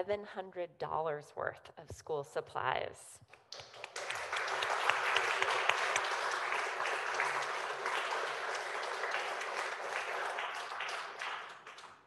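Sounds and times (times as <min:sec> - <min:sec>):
crowd clapping: 0:03.4 - 0:12.0.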